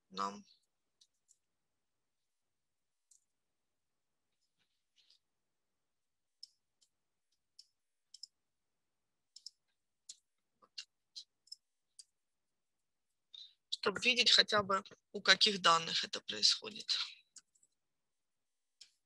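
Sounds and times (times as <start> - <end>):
keyboard and mouse clicks: 6.4 - 8.4, 9.3 - 12.2, 16.7 - 17.8, 18.8 - 19.0.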